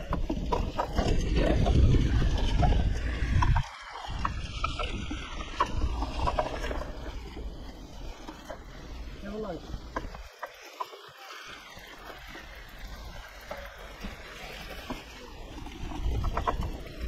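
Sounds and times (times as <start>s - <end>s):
wind rumble on microphone: 0.0s - 9.0s, 14.8s - 17.0s
bike clicks and rattles: 0.0s - 17.0s
tyres rolling over trail: 0.0s - 17.0s.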